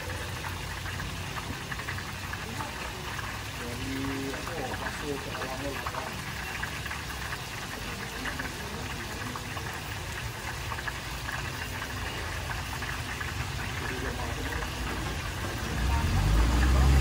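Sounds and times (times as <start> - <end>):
food sizzling in hot oil: 0.0 - 17.0.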